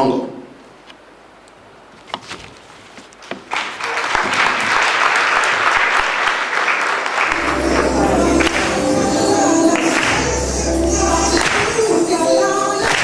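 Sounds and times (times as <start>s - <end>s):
audience applauding: 3.4s - 10.5s, 11.2s - 11.9s.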